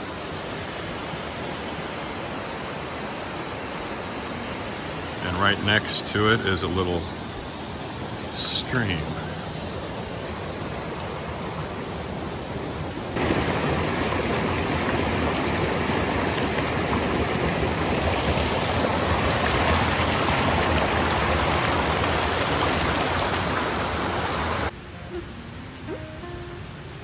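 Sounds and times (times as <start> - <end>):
stream running: 0.0 - 27.0.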